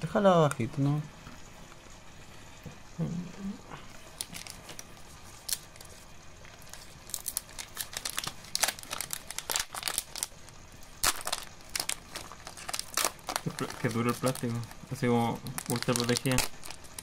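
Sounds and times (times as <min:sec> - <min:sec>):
plastic pack crinkling and tearing: 0:04.1 - 0:17.0.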